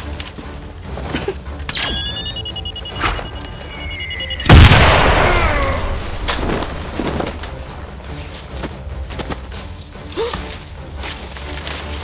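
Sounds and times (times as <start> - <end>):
explosion blast: 4.4 - 6.9.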